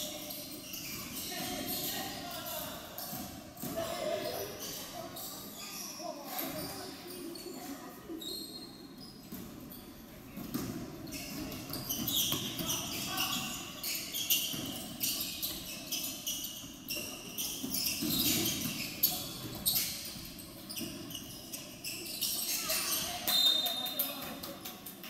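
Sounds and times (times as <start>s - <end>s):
voices in a hall: 0.0s - 25.0s
basketball bouncing on wooden floor: 10.4s - 13.5s.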